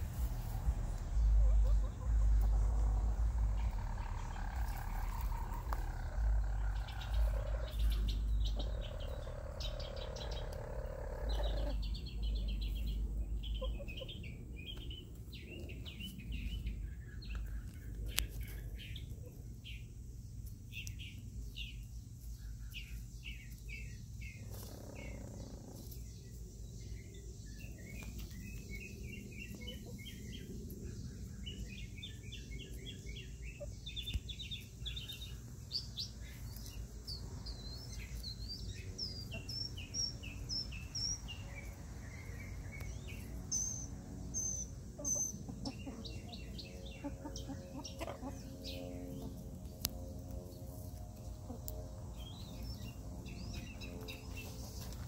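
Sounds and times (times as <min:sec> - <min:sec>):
loud rushing noise: 0:00.0 - 0:06.2
birds chirping: 0:00.0 - 0:55.0
low steady rumble: 0:00.0 - 0:55.0.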